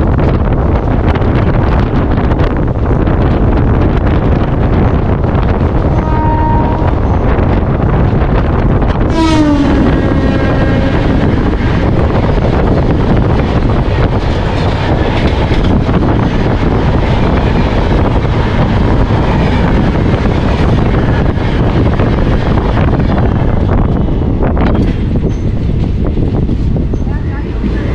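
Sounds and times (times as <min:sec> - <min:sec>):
train rumbling on rails: 0:00.0 - 0:27.9
train horn sliding down in pitch: 0:05.9 - 0:07.2, 0:09.1 - 0:11.3.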